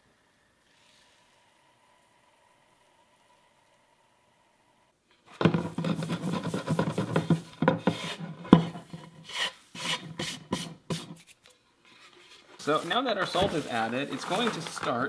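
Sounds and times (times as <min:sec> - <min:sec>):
hand scraping salt off board: 0:12.6 - 0:15.0.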